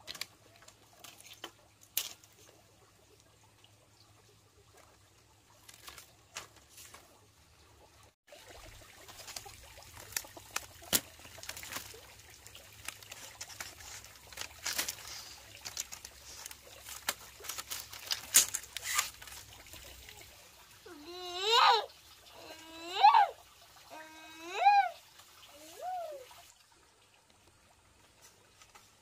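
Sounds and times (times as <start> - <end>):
bamboo strips clattering: 0.0 - 2.6, 4.7 - 7.3, 9.0 - 20.3.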